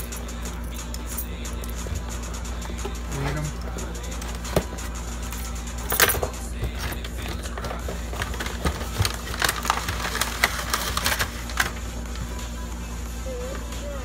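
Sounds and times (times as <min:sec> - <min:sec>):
packaging crinkling and rustling: 0:06.6 - 0:11.9.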